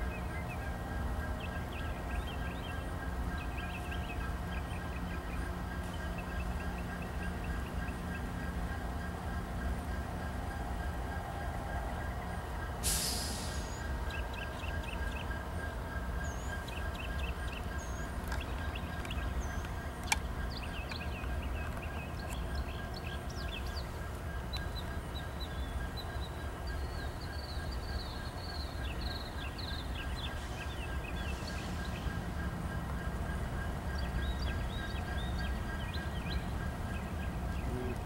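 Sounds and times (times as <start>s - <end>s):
diesel locomotive rumbling: 0.0s - 38.0s
small birds chirping: 13.4s - 38.0s.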